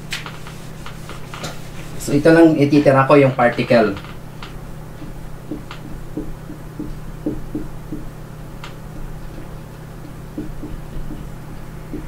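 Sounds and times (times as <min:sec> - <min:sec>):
steady low hum: 0:00.0 - 0:12.0
marker writing on whiteboard: 0:00.2 - 0:03.7
pen tip tapping board: 0:04.4 - 0:08.8.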